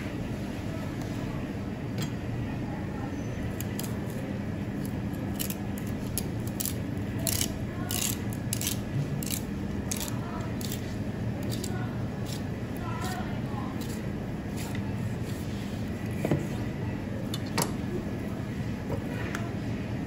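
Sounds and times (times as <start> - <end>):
knife scraping fish bones: 4.8 - 14.8.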